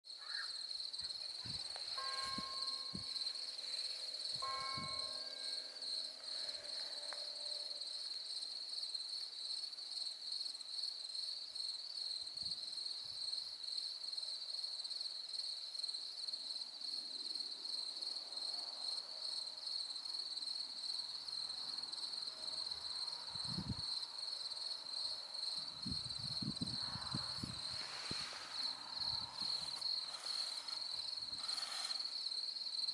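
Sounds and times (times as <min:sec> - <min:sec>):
crickets chirping: 0:00.1 - 0:32.9
faint pitched tones: 0:01.2 - 0:08.3.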